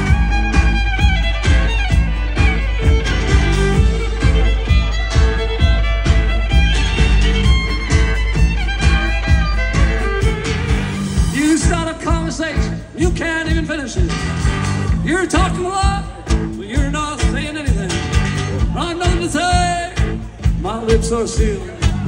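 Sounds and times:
acoustic guitar: 0.0 - 22.0
fiddle melody: 0.0 - 22.0
rhythm section beat: 0.0 - 22.0.

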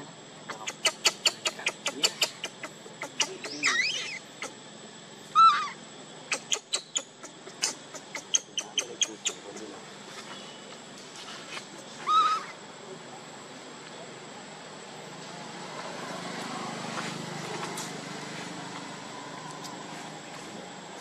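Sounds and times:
baby monkey crying: 0.5 - 4.6, 5.3 - 9.5, 11.9 - 12.6.

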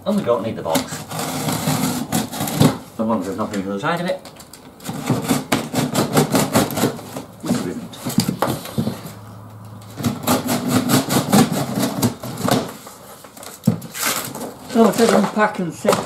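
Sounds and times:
cardboard box scraping and rustling: 0.9 - 3.4, 4.8 - 9.2, 9.9 - 15.6.

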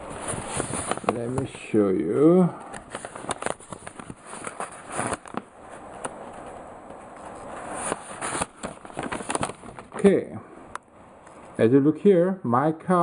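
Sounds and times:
handling rustle: 0.0 - 1.8, 2.7 - 10.1.

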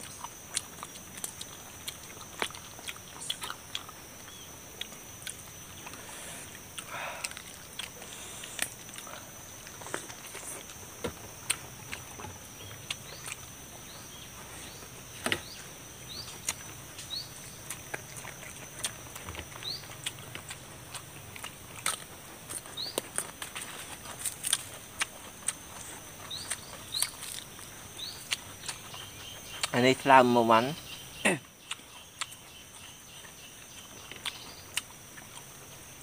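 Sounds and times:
chewing and eating sounds: 0.0 - 36.0
high insect drone: 0.0 - 36.0
bird chirps: 12.6 - 17.7, 19.5 - 20.2, 26.2 - 27.4, 28.0 - 29.9.

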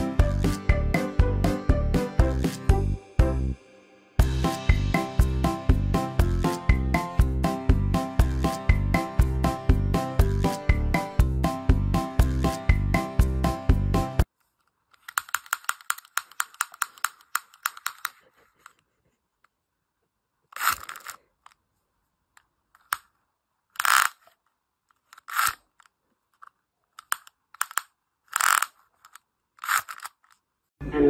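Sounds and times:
music: 0.0 - 14.3, 30.8 - 31.0
plastic gadget ratcheting clicks: 14.9 - 18.8, 20.5 - 21.6, 22.8 - 23.1, 23.7 - 30.4.

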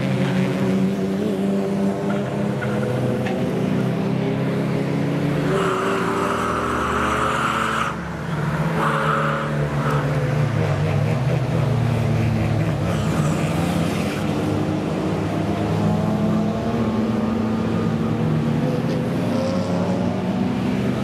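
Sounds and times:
racing car engines revving: 0.0 - 21.0.

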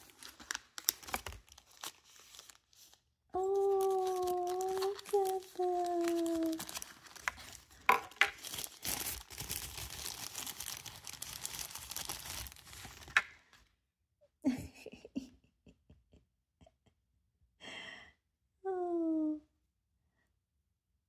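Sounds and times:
plastic bag crinkling: 0.0 - 13.5
soft breathy sigh: 17.6 - 19.5.

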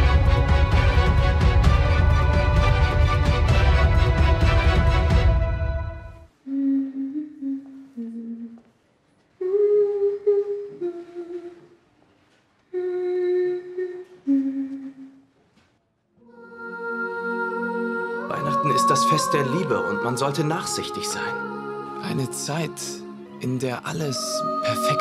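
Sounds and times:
intro music: 0.0 - 6.3
person humming a slow tune: 6.4 - 8.8, 9.4 - 11.8, 12.7 - 15.3.

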